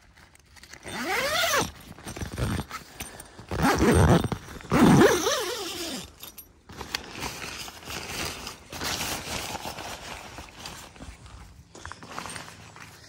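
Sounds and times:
zip pulled with whine: 0.6 - 6.3.

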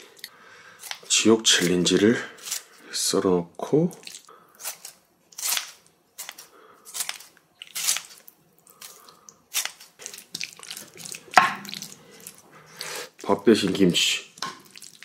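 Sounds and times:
crunching and chewing: 4.0 - 12.9.

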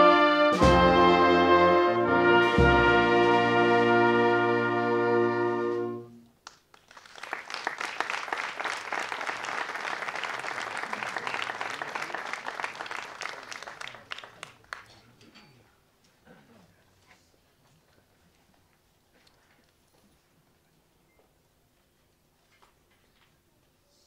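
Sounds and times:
wind band chord: 0.0 - 6.2
audience clapping: 6.4 - 15.2.

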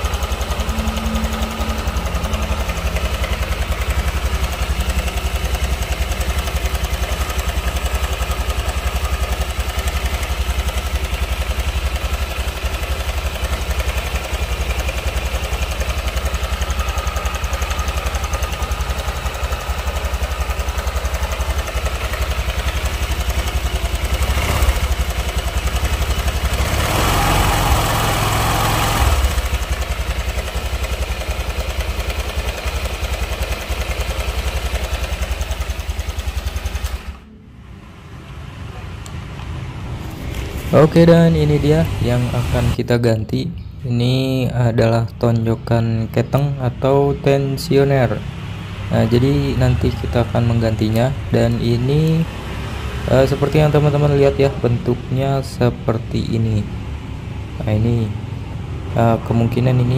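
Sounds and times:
louder noise: 0.0 - 6.9
scooter engine idling roughly: 0.0 - 37.3, 46.4 - 55.8.

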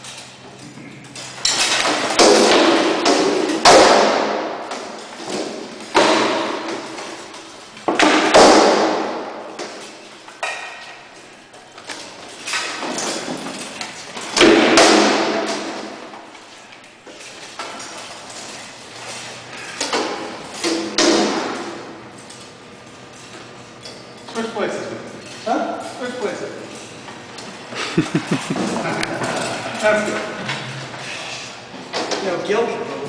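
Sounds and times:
swords striking shields and armour: 1.7 - 6.9, 7.9 - 9.8, 14.3 - 16.1.

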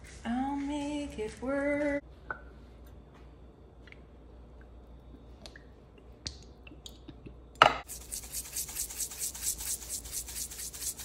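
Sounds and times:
spice grinder rasping: 7.9 - 11.0.

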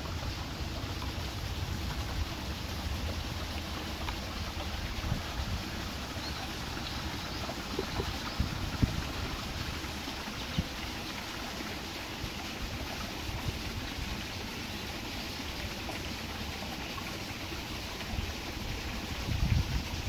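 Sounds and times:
wind rumble on microphone: 4.5 - 6.4, 7.7 - 9.8, 18.1 - 20.0.

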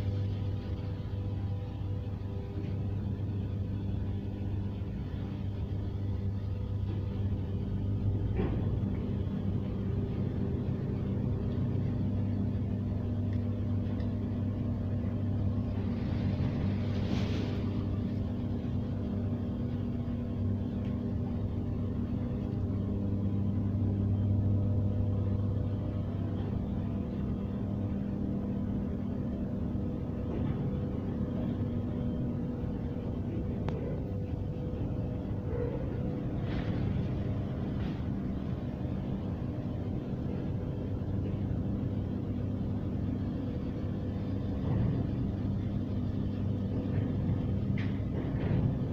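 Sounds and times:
low machine hum: 0.0 - 48.9.

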